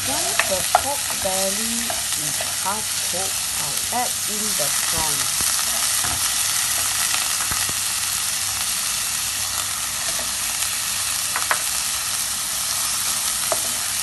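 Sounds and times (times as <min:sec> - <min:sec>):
food sizzling in hot oil: 0:00.0 - 0:14.0.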